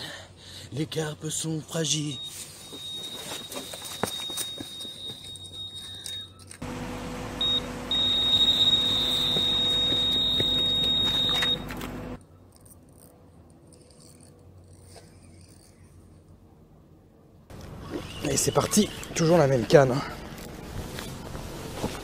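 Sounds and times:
bite alarm beeping tone: 1.9s - 6.5s, 7.4s - 11.7s.

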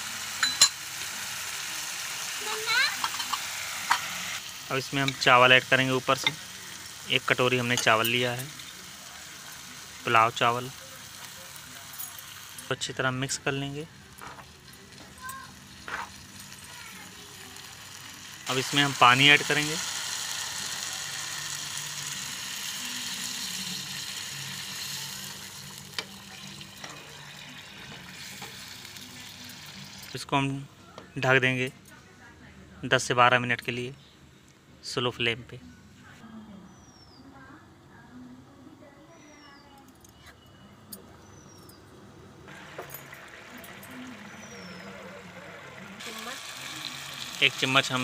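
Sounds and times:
water sizzling in hot pan: 0.0s - 12.8s, 14.0s - 30.3s, 42.5s - 48.0s
rice simmering bubbling: 42.5s - 48.0s.

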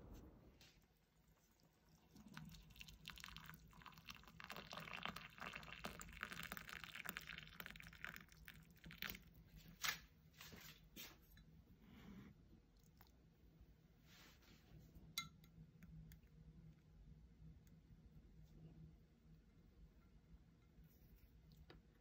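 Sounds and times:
water pouring into a glass cup: 1.2s - 9.4s.

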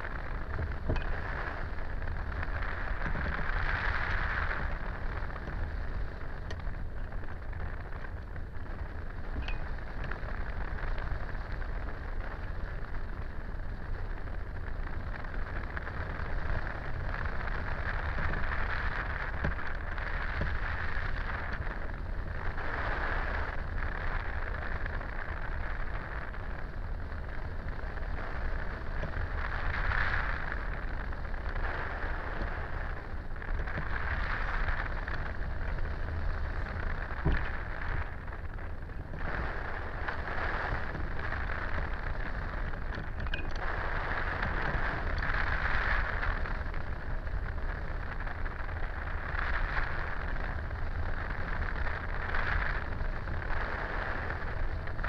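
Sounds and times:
wind noise on microphone: 0.0s - 55.0s.

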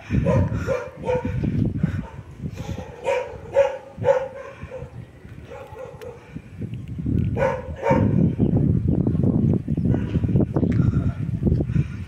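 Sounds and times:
dog barking: 0.2s - 6.2s, 7.4s - 8.2s.

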